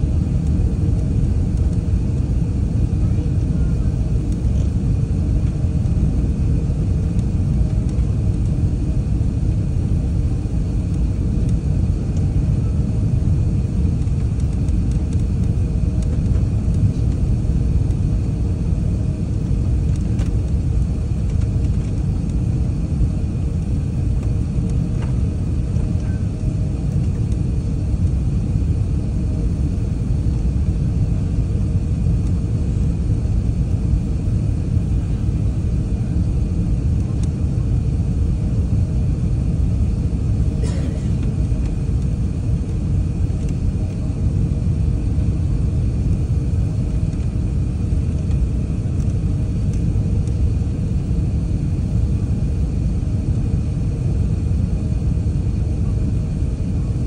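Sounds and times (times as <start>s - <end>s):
aircraft cabin engine rumble: 0.0s - 57.0s.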